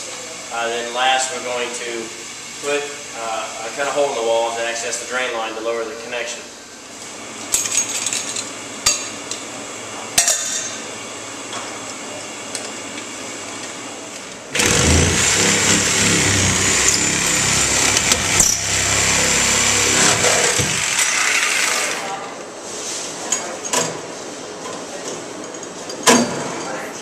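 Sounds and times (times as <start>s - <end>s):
power saw cutting: 14.5s - 22.2s.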